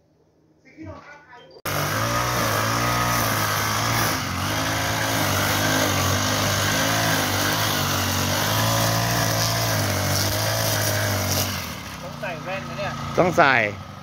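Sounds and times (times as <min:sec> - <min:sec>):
string trimmer engine cutting grass: 0:01.7 - 0:14.0.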